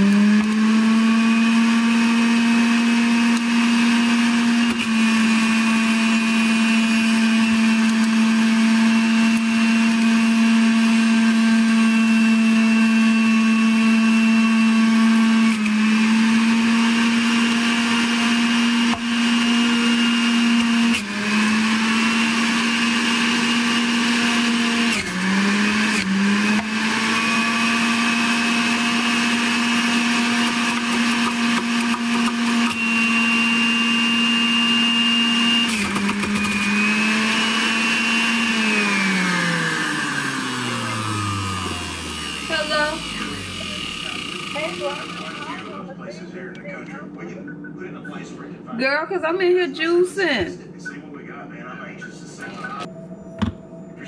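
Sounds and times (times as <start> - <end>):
juicer motor whining: 0.0 - 45.9.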